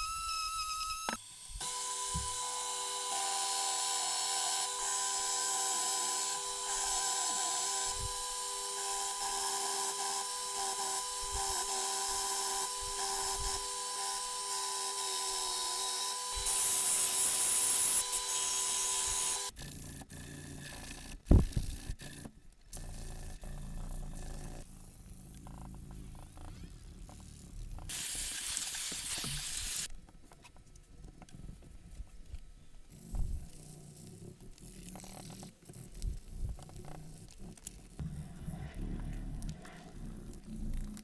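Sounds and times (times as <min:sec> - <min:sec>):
belt sander whining: 0:00.0 - 0:19.5.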